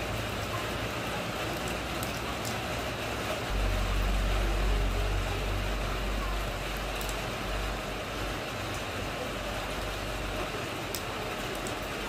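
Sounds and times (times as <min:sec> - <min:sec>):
rain splashing into puddle: 0:00.0 - 0:12.0
deep low rumble: 0:03.5 - 0:08.3.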